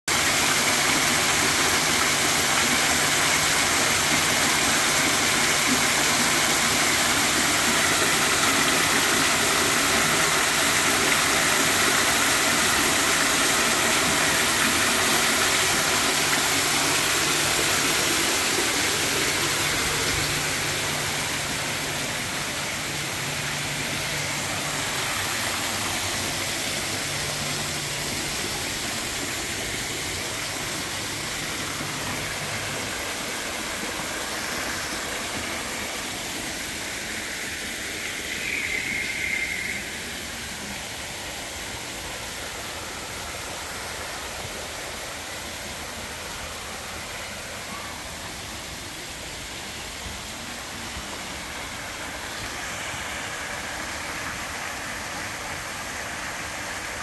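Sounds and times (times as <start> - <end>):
waterfall splashing into pond: 0.1 - 57.0.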